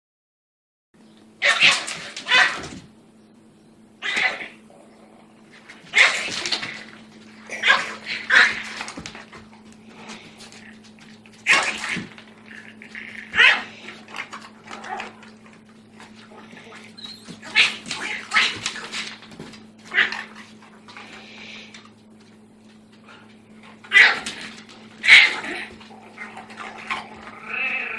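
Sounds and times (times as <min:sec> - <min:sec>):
puppy yapping: 0:01.4 - 0:02.8, 0:04.0 - 0:04.6, 0:05.8 - 0:06.8, 0:07.5 - 0:09.0, 0:13.0 - 0:13.8, 0:19.8 - 0:20.4, 0:23.8 - 0:24.4, 0:25.0 - 0:27.9.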